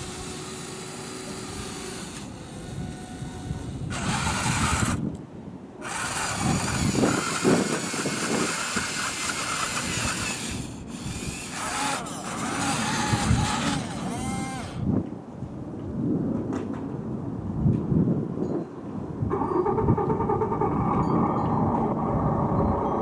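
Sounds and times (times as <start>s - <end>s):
toy motors whining: 0.0s - 5.1s, 5.8s - 14.8s.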